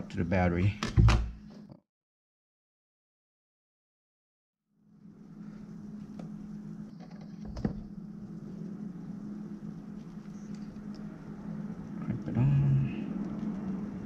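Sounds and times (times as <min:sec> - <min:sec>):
steady low hum: 0:04.8 - 0:14.0
man humming: 0:12.0 - 0:13.2.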